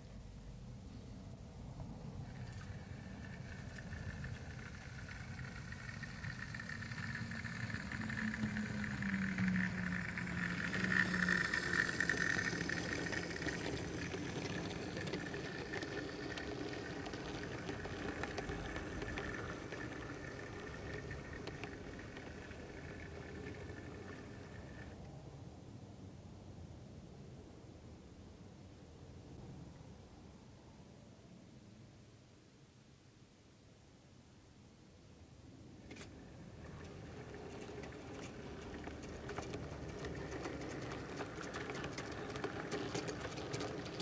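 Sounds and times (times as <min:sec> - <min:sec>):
wheels clicking over rail joints: 0:00.0 - 0:25.0, 0:35.9 - 0:44.0
model train running on track: 0:00.0 - 0:25.1, 0:35.9 - 0:44.0.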